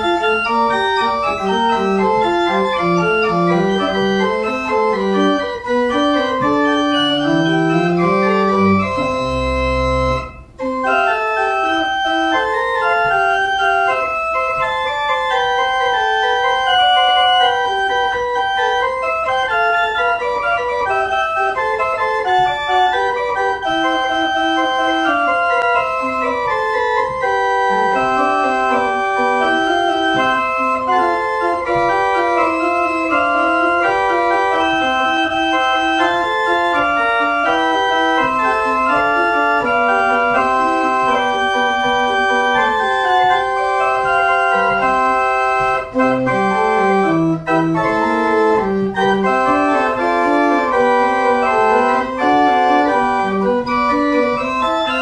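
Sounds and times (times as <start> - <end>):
pipe organ playing: 0.0 - 55.0.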